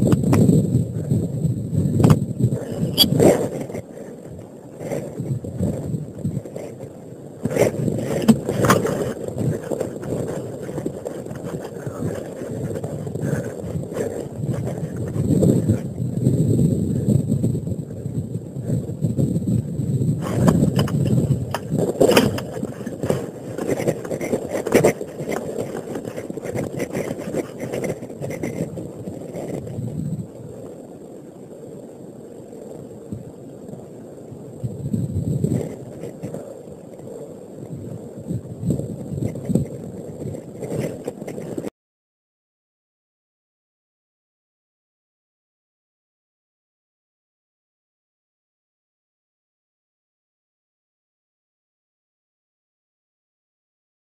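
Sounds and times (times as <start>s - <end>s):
microphone handling noise: 0.0s - 30.7s, 34.6s - 36.6s, 37.7s - 41.7s
low rumble of wind: 0.0s - 41.7s.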